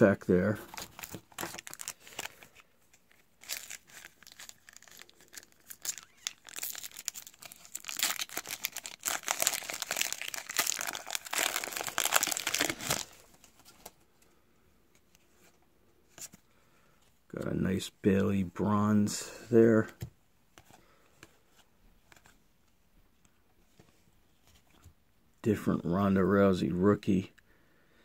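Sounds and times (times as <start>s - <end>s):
foil wrapper crinkling: 0.7s - 2.6s, 3.4s - 13.3s.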